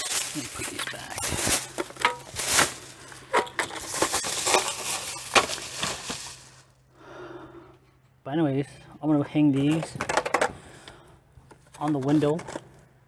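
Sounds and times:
plastic bag rustling: 0:00.0 - 0:06.7.

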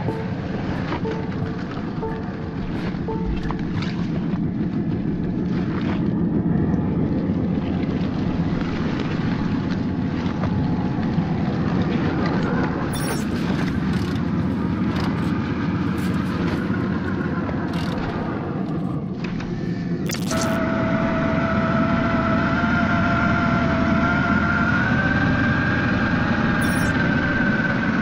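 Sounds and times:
electric motor and gearbox whirring: 0:12.8 - 0:16.8, 0:20.1 - 0:20.6, 0:26.5 - 0:27.0.

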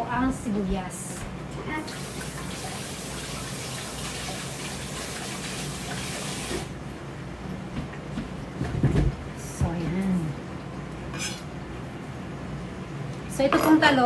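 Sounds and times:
kitchen tap running water: 0:01.8 - 0:06.8.

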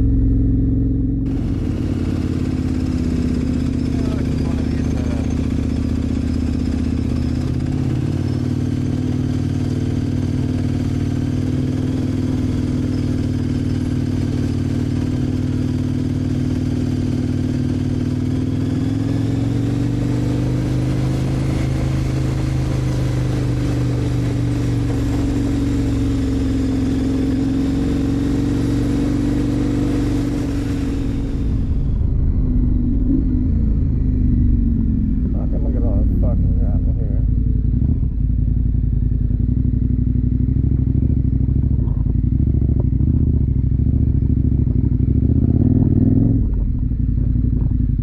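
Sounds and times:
motorcycle engine running: 0:00.0 - 0:48.0.

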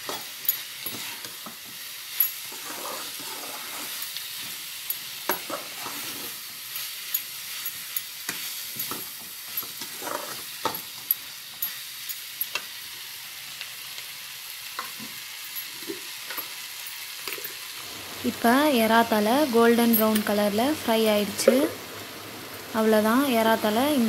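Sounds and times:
prawn heads sizzling in oil: 0:00.0 - 0:24.0
metal spatula scraping pan: 0:02.3 - 0:04.2, 0:05.4 - 0:06.5, 0:09.6 - 0:10.5.

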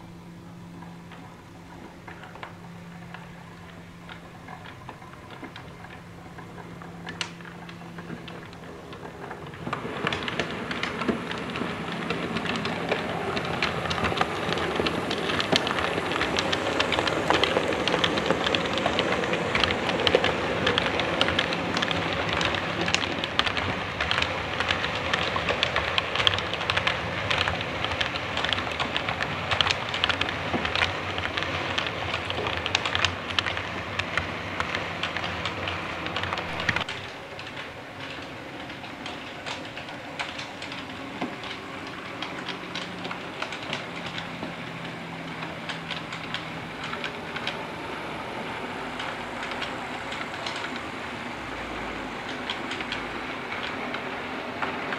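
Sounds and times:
model train rumbling and clicking: 0:00.0 - 0:54.9.

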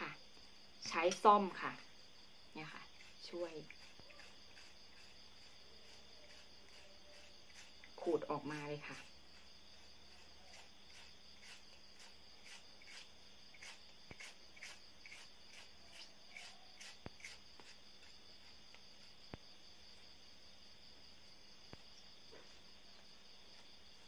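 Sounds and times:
fork scraping aloe leaf: 0:02.6 - 0:19.2.

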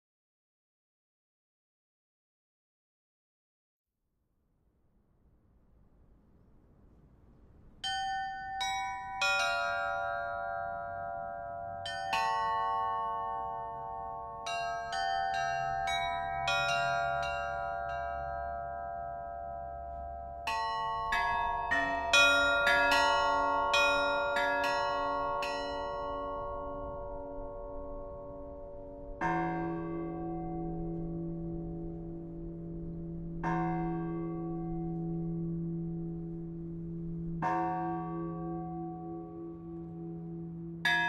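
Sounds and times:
small tuned bells ringing: 0:07.8 - 0:28.0
deeper bell with wavering hum: 0:07.9 - 0:41.0.

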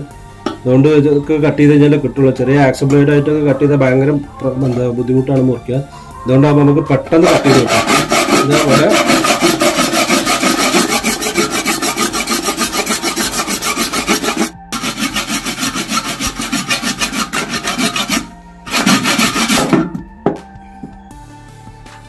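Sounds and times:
hand saw cutting bone: 0:07.2 - 0:19.9.

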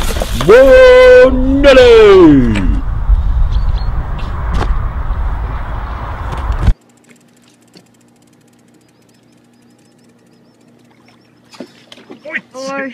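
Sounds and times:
low steady hum: 0:04.9 - 0:12.9
fishing reel ticking: 0:06.7 - 0:11.4.

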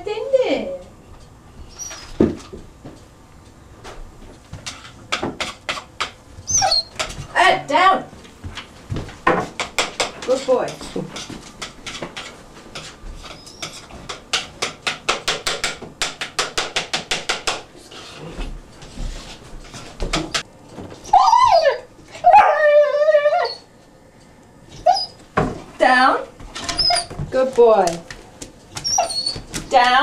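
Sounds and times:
puppy howling: 0:21.0 - 0:23.7, 0:28.8 - 0:29.4.

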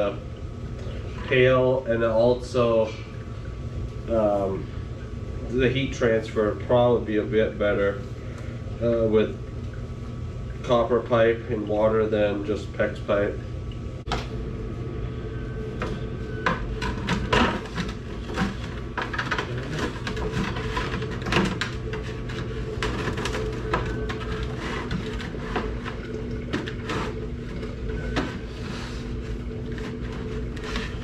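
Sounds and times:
low electrical hum: 0:00.0 - 0:31.0.

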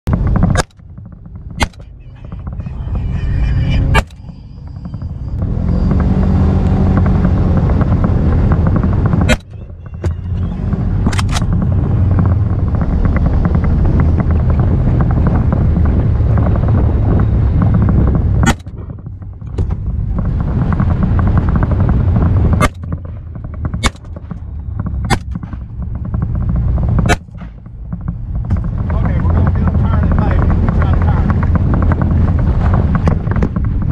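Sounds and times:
vehicle engine rumbling: 0:00.0 - 0:33.9
sharp click: 0:11.1 - 0:11.5.

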